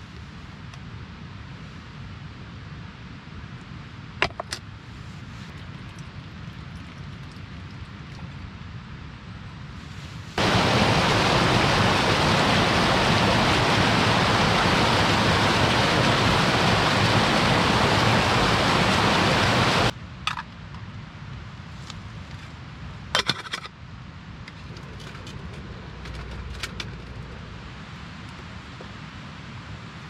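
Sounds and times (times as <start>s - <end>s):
stream rushing over rocks: 10.4s - 19.9s.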